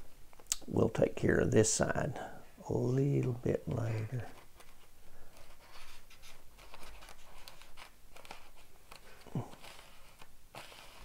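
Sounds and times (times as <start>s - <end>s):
fingertips rustling paper: 3.8s - 11.0s.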